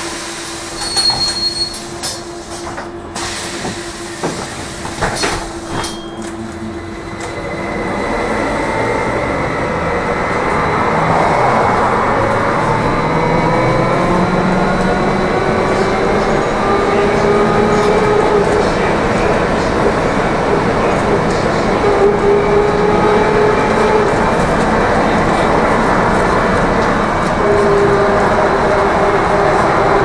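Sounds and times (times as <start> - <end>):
road and tyre noise: 0.8 - 30.0.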